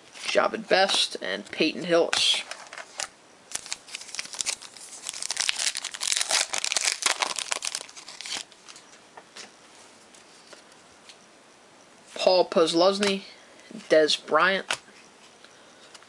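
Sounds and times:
foil wrapper crinkling: 2.4 - 8.8.

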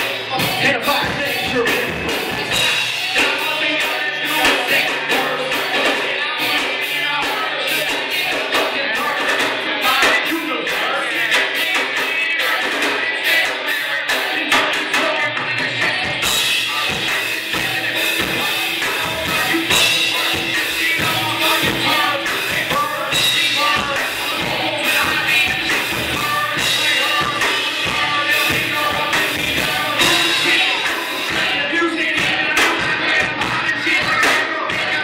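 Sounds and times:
drum kit: 0.0 - 35.0
keyboard: 0.0 - 35.0
cymbals: 16.2 - 31.8.

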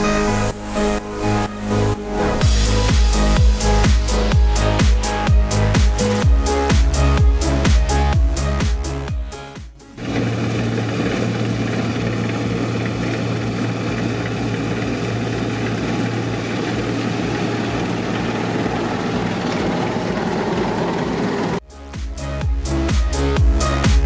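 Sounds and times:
combine harvester running: 9.9 - 21.6.

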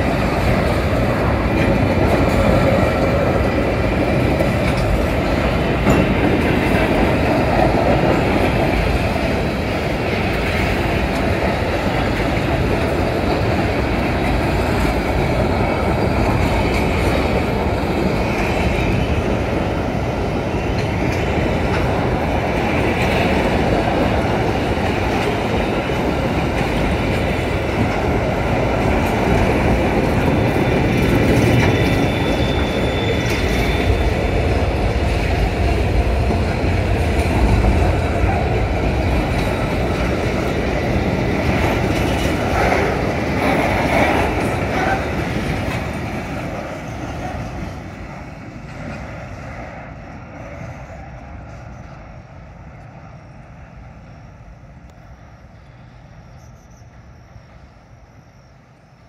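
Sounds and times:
train wheels rumbling on rail: 0.0 - 59.0
high wheel squeal: 30.1 - 34.6, 55.6 - 57.4.

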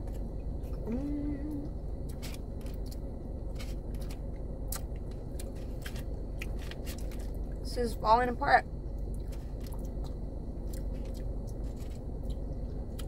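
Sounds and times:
car cabin hum: 0.0 - 13.0
person humming: 0.8 - 1.7
person chewing food: 2.0 - 7.6, 9.0 - 13.0.

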